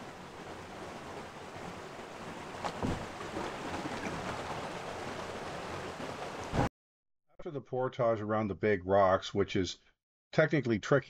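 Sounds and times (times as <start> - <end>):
canoe paddling: 0.0 - 6.7
water washing around canoe: 0.0 - 6.7
loud thump: 2.6 - 3.2.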